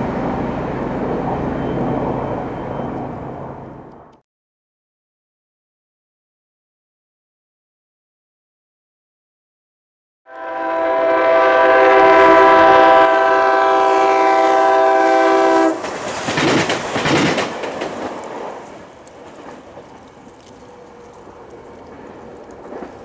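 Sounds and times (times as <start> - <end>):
railcar passing: 0.0 - 4.2, 10.3 - 23.0
train horn blast: 10.3 - 15.9.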